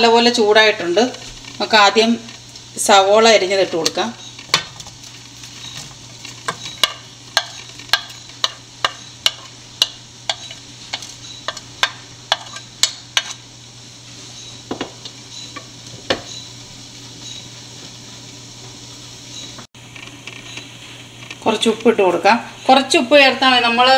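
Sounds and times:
onion sizzling in oil: 0.0s - 23.9s
spatula knocking against pan: 6.5s - 13.3s.

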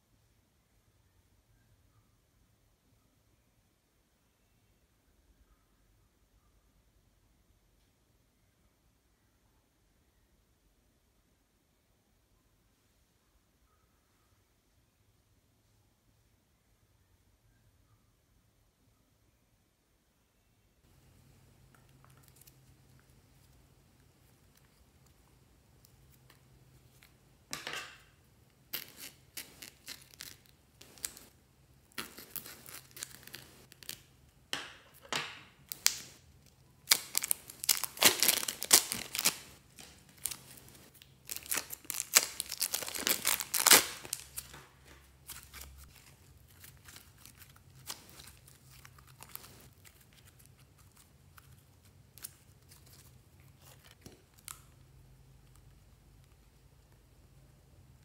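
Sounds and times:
plastic bags crinkling: 36.8s - 51.0s.

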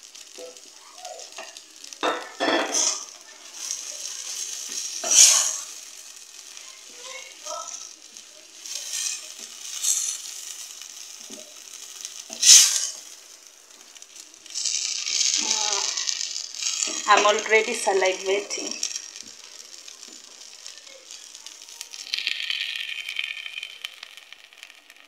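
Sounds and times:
stew sizzling: 0.0s - 25.0s
wooden spoon stirring in steel pot: 6.4s - 13.1s.

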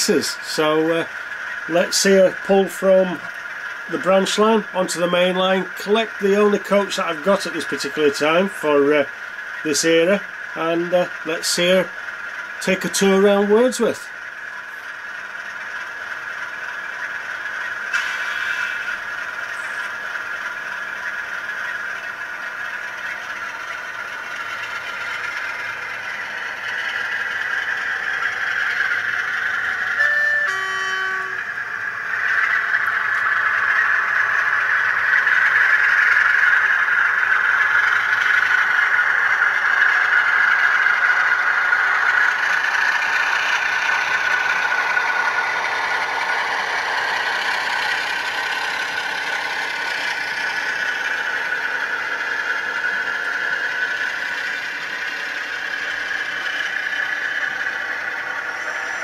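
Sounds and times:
model locomotive running: 0.0s - 59.0s
two-note horn: 29.9s - 31.5s.

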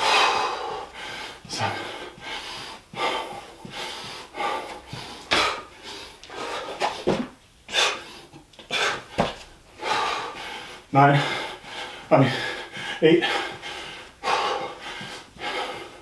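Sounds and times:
man panting hard: 0.0s - 16.0s
body thumping on floor: 7.0s - 7.4s, 9.1s - 9.4s.

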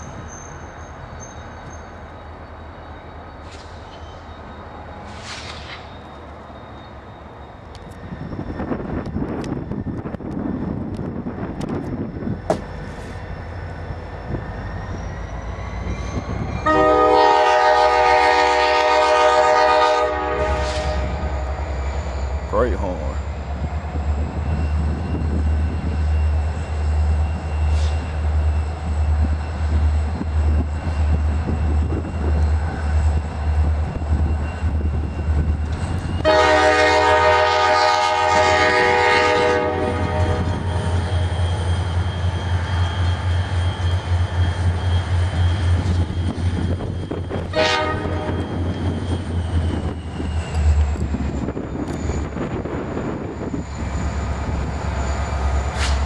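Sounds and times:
diesel locomotives rumbling past: 0.0s - 56.0s
train air horn blasts: 16.6s - 21.8s, 36.2s - 40.9s, 47.5s - 48.5s.

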